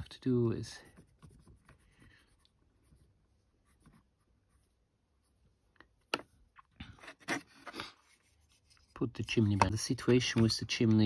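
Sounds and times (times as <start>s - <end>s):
hands scratching and tapping parts: 8.4s - 11.0s.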